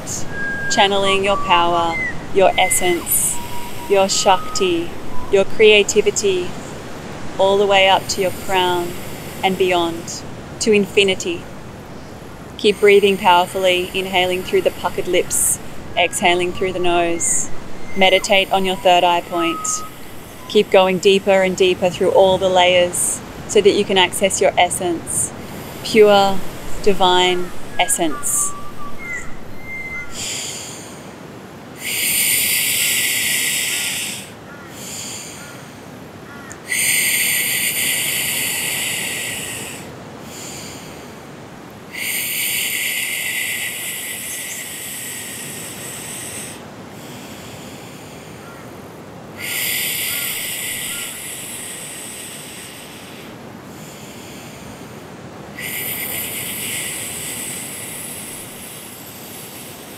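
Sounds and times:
hissing inhales through lips: 49.4s - 59.9s.

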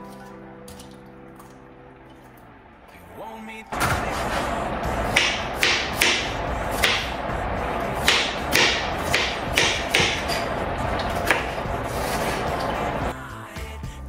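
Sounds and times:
background music: 0.0s - 14.0s
knife chopping on wooden board: 5.1s - 7.1s, 8.0s - 10.4s, 11.0s - 12.8s.

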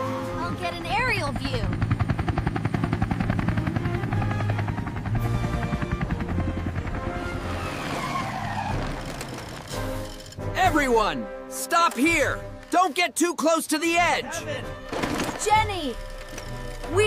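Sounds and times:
background music: 0.0s - 17.0s
helicopter rotor chopping: 0.1s - 8.0s, 8.6s - 11.0s, 14.9s - 17.0s.

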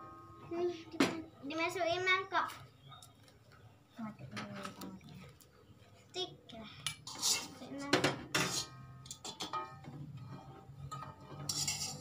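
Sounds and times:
metal spoon clinking in a wok: 10.9s - 12.0s.

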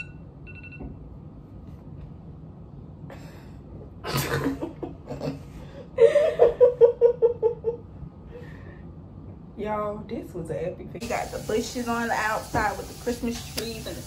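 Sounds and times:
woman laughing: 4.1s - 5.4s, 6.0s - 7.8s.

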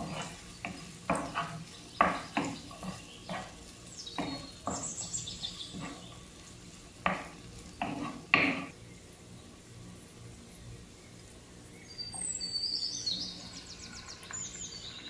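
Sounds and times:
wooden spatula scraping a pan: 0.0s - 8.8s
vegetables sizzling: 0.0s - 15.0s.

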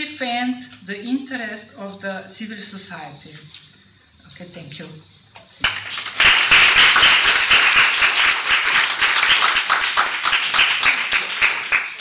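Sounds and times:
audience applause: 5.6s - 12.0s.

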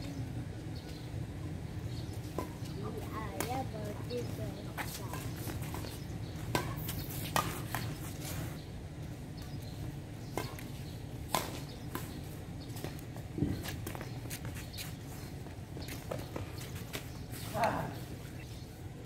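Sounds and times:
rackets striking shuttlecock: 5.1s - 8.0s, 10.3s - 14.1s.

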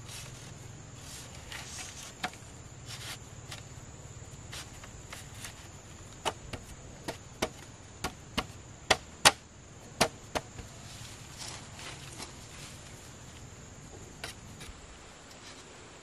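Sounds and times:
chopping wood: 6.2s - 9.4s, 10.0s - 10.7s.

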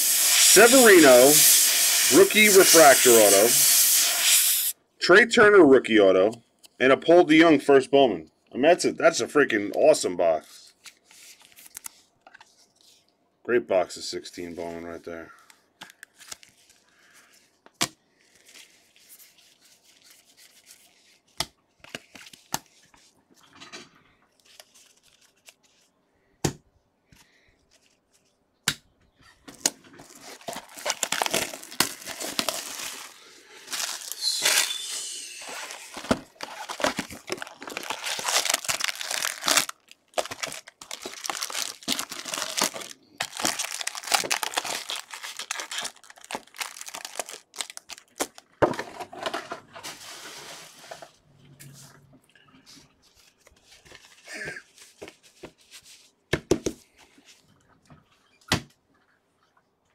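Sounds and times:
plastic wrapping crinkling: 29.5s - 48.6s.

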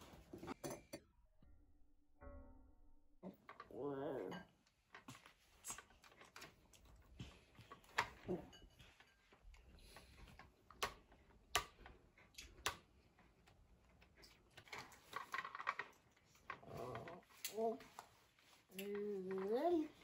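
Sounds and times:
plastic toy rattling: 14.6s - 17.7s.

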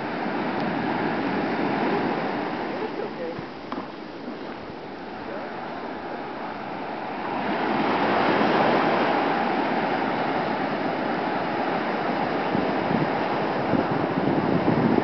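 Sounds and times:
ocean waves breaking on shore: 0.0s - 15.0s.

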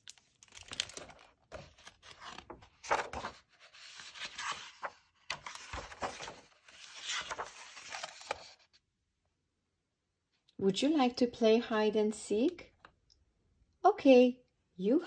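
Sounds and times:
book pages rustling: 0.0s - 8.8s.

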